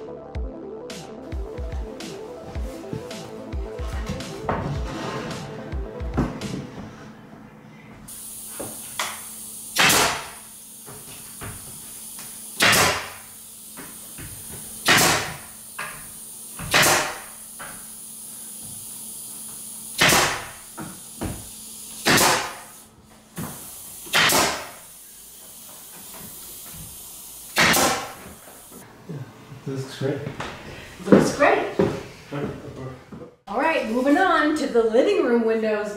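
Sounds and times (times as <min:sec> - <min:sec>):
nail gun shots: 0:09.8 - 0:10.4, 0:12.6 - 0:13.3, 0:14.8 - 0:15.5, 0:16.7 - 0:17.4, 0:20.0 - 0:20.6, 0:22.0 - 0:22.7, 0:24.1 - 0:24.8, 0:27.6 - 0:28.2.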